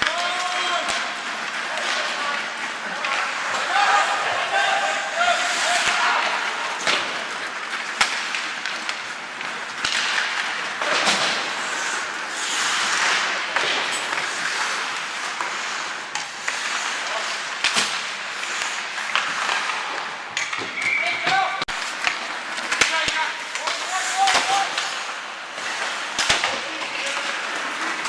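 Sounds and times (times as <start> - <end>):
spectators talking: 0.0 - 8.0
hockey sticks and puck clacking: 0.0 - 28.0
skates scraping on ice: 0.0 - 28.0.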